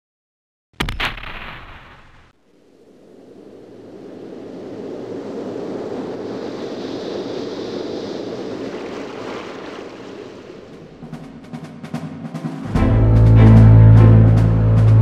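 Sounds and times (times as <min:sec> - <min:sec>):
rushing noise: 0:00.8 - 0:11.6.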